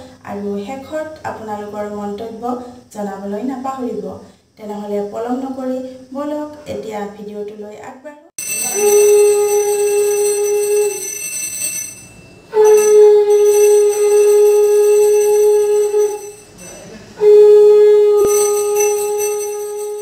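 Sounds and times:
conch shell blasts: 8.4 - 20.0.

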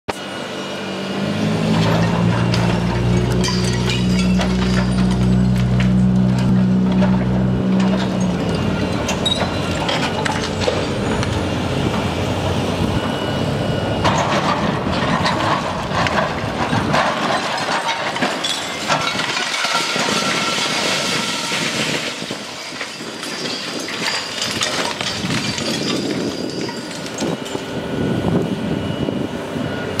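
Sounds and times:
low engine hum: 0.2 - 17.0
glass and brick crunching and falling: 1.8 - 11.0, 14.1 - 27.6.

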